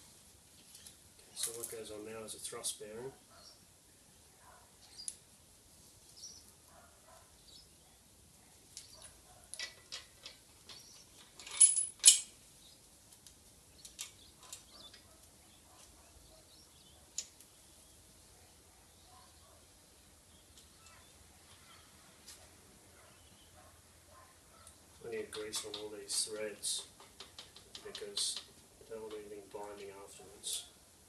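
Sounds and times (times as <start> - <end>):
small metal parts clinking: 0.7 - 1.9, 8.8 - 12.4.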